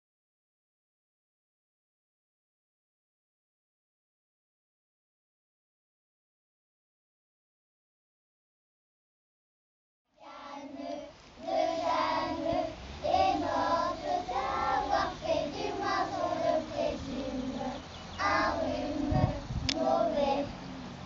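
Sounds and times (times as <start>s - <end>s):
children singing: 10.2s - 21.0s.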